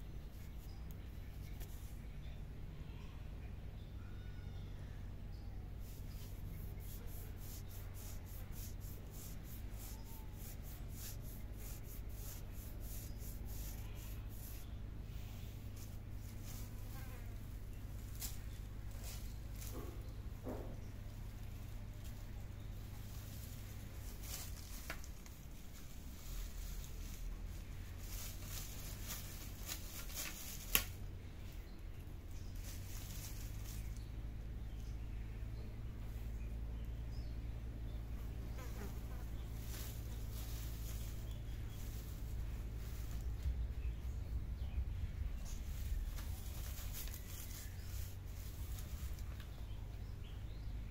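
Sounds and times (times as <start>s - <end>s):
low steady hum: 0.0s - 50.9s
plastic strips crinkling: 23.2s - 31.0s, 45.6s - 49.6s.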